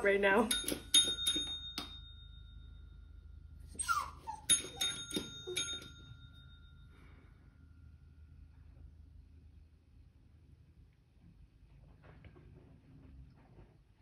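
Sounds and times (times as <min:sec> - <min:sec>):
hanging bell ringing: 0:00.0 - 0:08.0
dog whining: 0:03.7 - 0:05.8.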